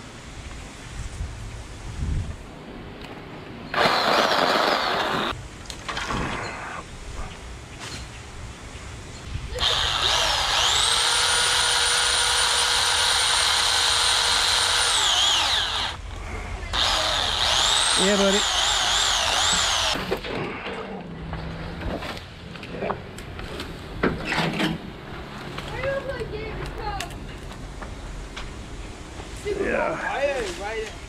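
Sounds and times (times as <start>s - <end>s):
electric pole saw whining: 3.7s - 5.4s, 9.6s - 16.0s, 16.7s - 20.1s.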